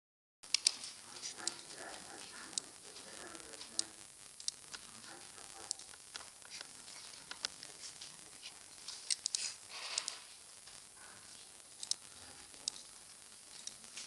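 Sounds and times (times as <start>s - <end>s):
steady hiss: 0.4s - 14.0s
computer mouse clicks: 9.1s - 10.2s, 11.8s - 12.0s.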